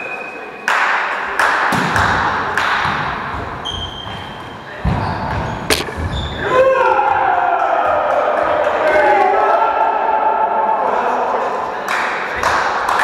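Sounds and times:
volleyball hits and thuds: 0:04.8 - 0:06.4.

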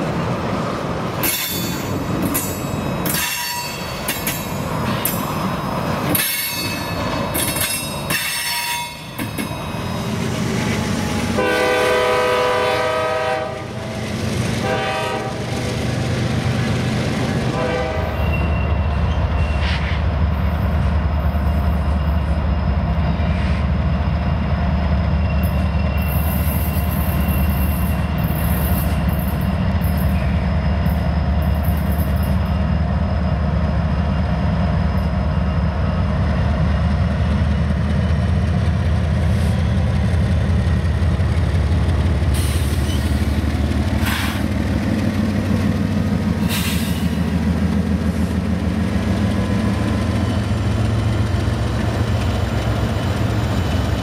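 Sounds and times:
freight train wheels rumbling: 0:00.0 - 0:54.0
wheel squeal: 0:18.2 - 0:20.0, 0:25.2 - 0:29.0, 0:42.4 - 0:43.2.

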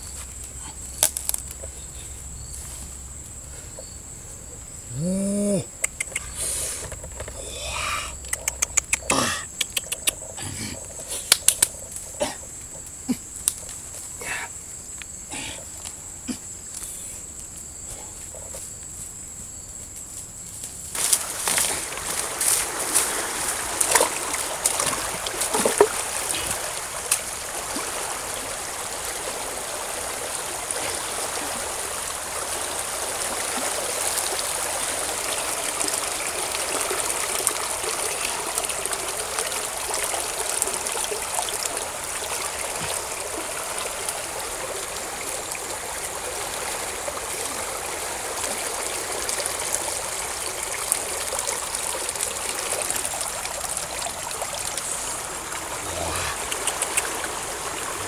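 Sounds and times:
water trickling and splashing: 0:20.3 - 0:58.0.

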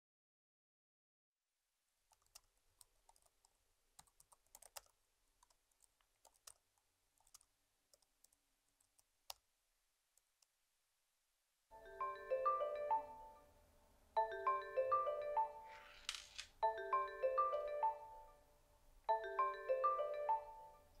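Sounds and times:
typing on laptop keyboard: 0:02.1 - 0:06.6, 0:07.2 - 0:09.4.

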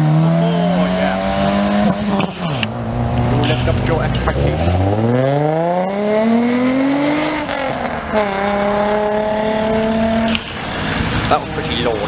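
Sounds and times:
car engine accelerating hard: 0:00.0 - 0:12.0.

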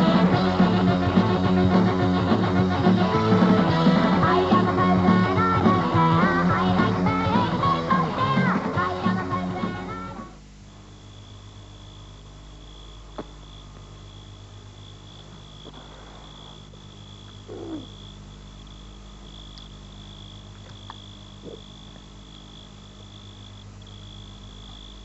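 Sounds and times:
low electrical hum: 0:00.0 - 0:25.0
crickets trilling: 0:10.5 - 0:25.0.

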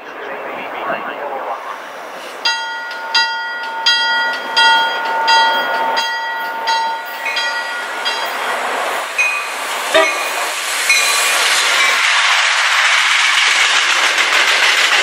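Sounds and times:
train noise: 0:00.0 - 0:15.0
locomotive bell ringing: 0:02.4 - 0:12.0.

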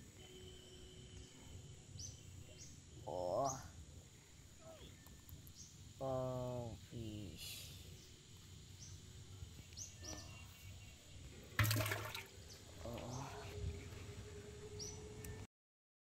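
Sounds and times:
fish splashing in bucket of water: 0:11.6 - 0:12.3.

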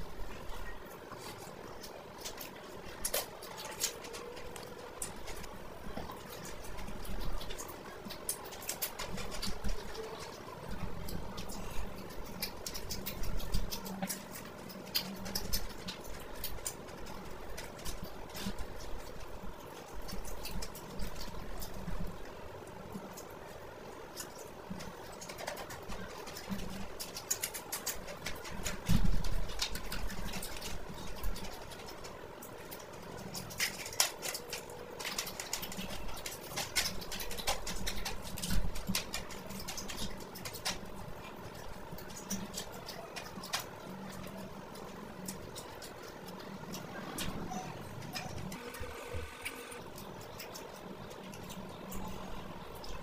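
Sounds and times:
chewing and wet mouth noises: 0:00.0 - 0:53.0
fried fish crackling while torn: 0:24.0 - 0:47.3.

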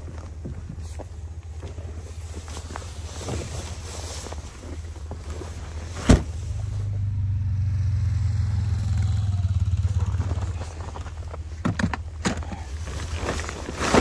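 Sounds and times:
atv engine rumbling: 0:00.0 - 0:14.0
knocks of crates handled: 0:11.3 - 0:12.7.

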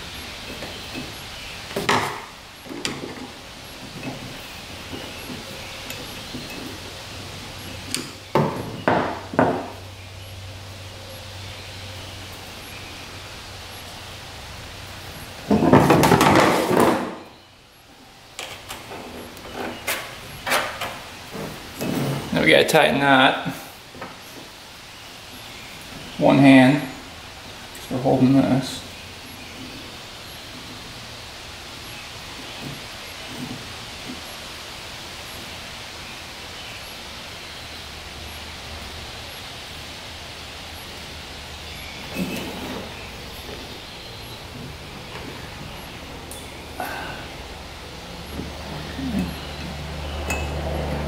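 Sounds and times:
even hiss: 0:00.0 - 0:51.0.

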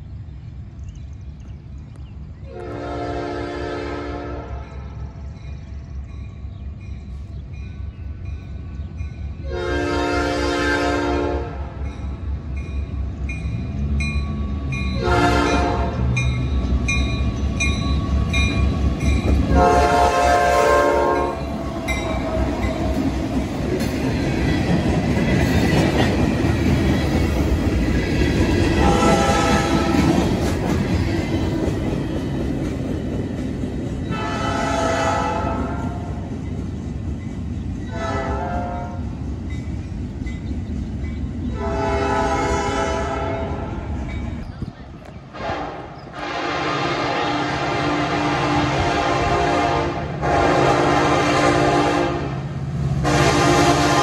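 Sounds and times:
train air horn blasts: 0:02.5 - 0:04.9, 0:09.4 - 0:11.8, 0:15.0 - 0:16.2, 0:19.5 - 0:22.6, 0:28.8 - 0:30.1, 0:34.1 - 0:36.2, 0:37.9 - 0:39.0, 0:41.5 - 0:43.9, 0:45.3 - 0:52.4, 0:53.0 - 0:54.0
train wheels clattering over rails: 0:13.4 - 0:38.4.

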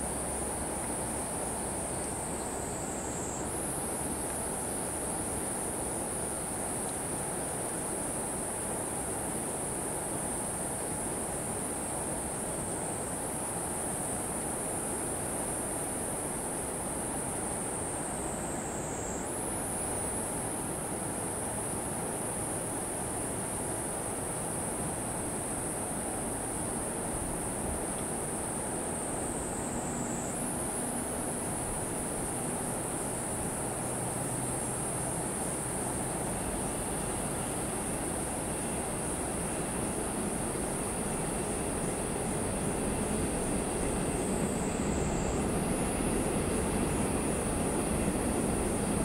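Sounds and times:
high-pitched insect chorus: 0:00.0 - 0:49.0
distant train rumble: 0:24.7 - 0:49.0.

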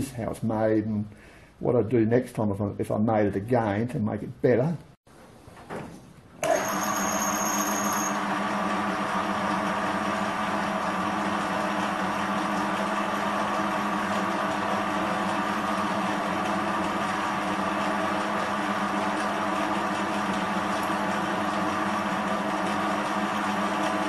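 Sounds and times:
lathe motor humming: 0:06.4 - 0:24.0.

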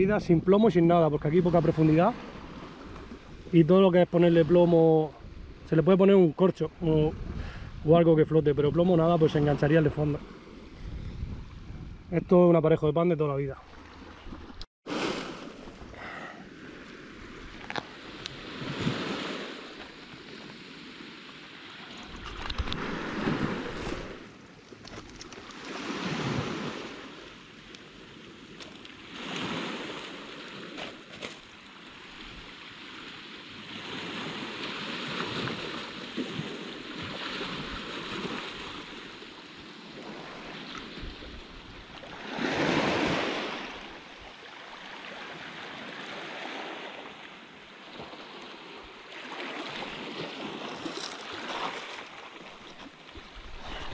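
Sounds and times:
wind on microphone: 0:05.0 - 0:05.8, 0:06.8 - 0:12.4, 0:40.0 - 0:44.4, 0:52.6 - 0:53.9
small waves washing onto shore: 0:13.6 - 0:53.9.

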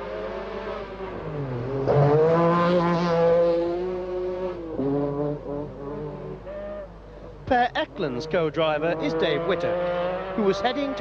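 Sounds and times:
rally car engine at high revs: 0:00.0 - 0:11.0.

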